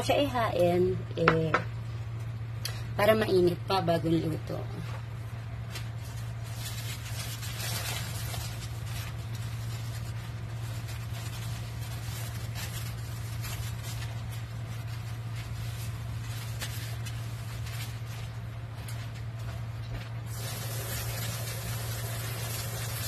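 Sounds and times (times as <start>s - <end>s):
low steady hum: 0.0s - 23.0s
sauce simmering and sizzling: 20.3s - 23.0s.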